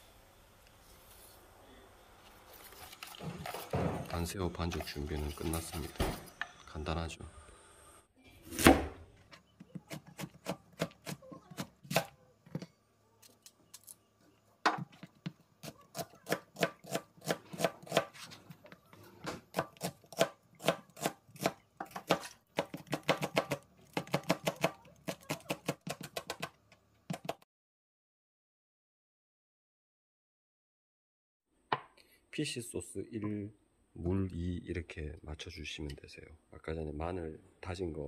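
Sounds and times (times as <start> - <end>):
knife chopping on cutting board: 15.6 - 18.3, 19.4 - 27.4.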